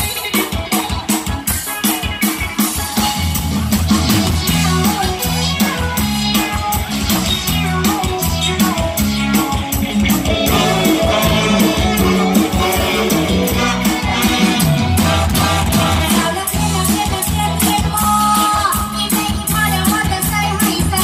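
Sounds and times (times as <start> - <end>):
fast drum beat: 0.0 - 21.0
live band music: 0.0 - 21.0
person singing: 4.6 - 14.9.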